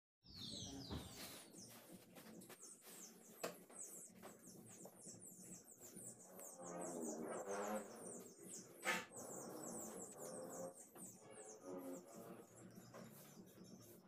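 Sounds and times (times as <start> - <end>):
rustles of felt being handled: 1.1 - 3.4.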